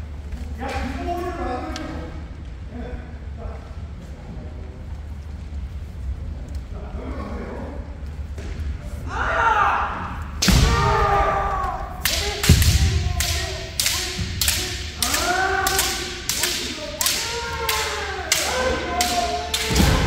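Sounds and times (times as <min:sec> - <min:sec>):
people shouting: 0:09.1 - 0:20.0
bamboo sword strikes: 0:10.4 - 0:11.2, 0:12.0 - 0:20.0.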